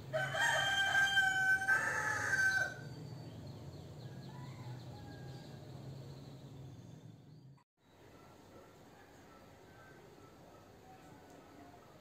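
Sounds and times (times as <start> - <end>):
rooster crowing: 0.1 - 2.8, 4.1 - 5.7.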